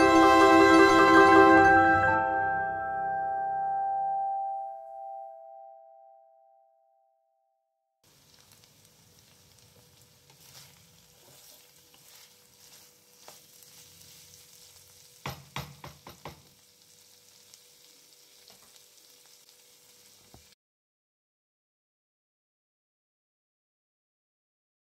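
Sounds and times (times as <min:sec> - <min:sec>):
potatoes sizzling in a pan: 0:08.0 - 0:20.6.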